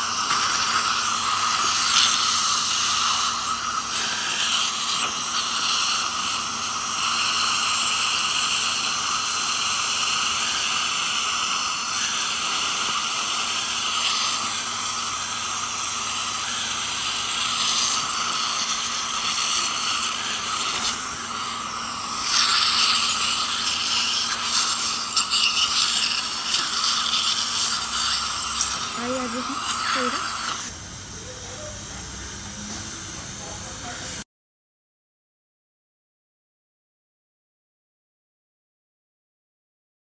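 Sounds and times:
dental scaler spray and suction hiss: 0.0s - 30.8s.

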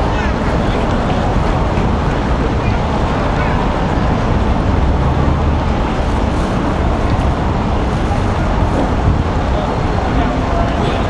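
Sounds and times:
road traffic rumbling: 0.0s - 11.0s.

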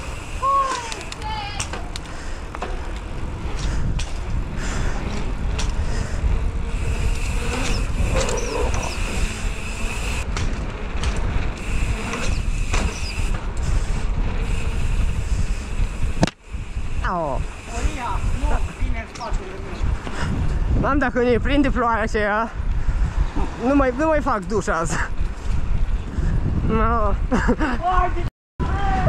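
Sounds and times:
bike tyres rolling on asphalt: 0.0s - 29.0s
bike knocks and rattles: 0.6s - 14.5s
wind on camera microphone: 3.1s - 29.0s.

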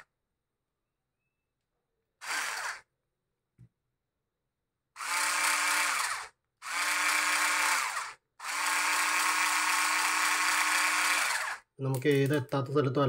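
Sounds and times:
cordless screwdriver motor whining: 2.2s - 2.9s, 5.0s - 11.6s.

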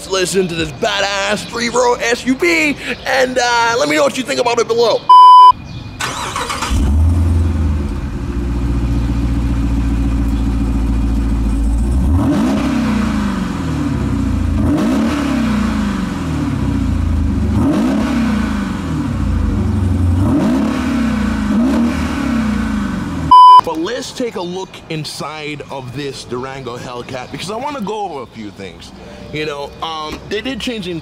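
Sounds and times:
engine exhaust idling and revving: 6.7s - 23.6s.

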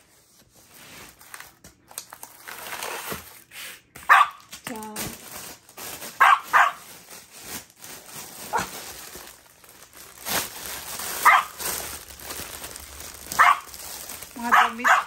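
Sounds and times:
plastic packaging rustling: 0.0s - 15.0s
small dog barking: 4.1s - 4.4s, 6.2s - 6.8s, 11.2s - 11.6s, 13.4s - 13.7s, 14.4s - 15.0s.

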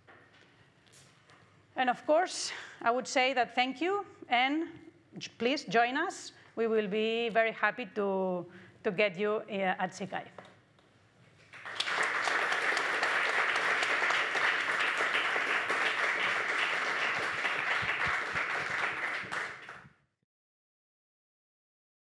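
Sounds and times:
audience applauding: 11.5s - 19.9s.

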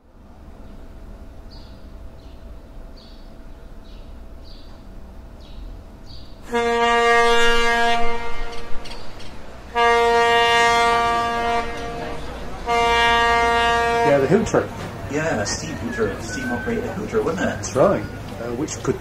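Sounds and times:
steam hooter blast: 6.4s - 18.2s.

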